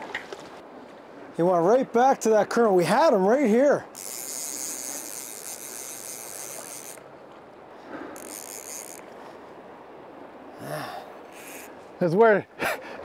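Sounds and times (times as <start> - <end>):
fly reel drag buzzing: 3.8 - 7.2, 7.9 - 9.4, 11.2 - 11.8.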